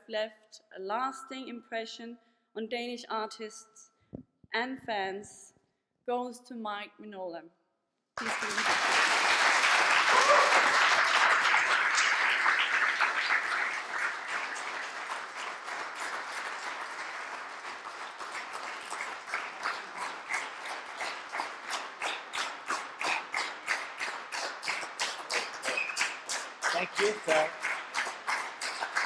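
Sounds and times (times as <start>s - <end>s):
audience applauding: 8.2s - 29.0s.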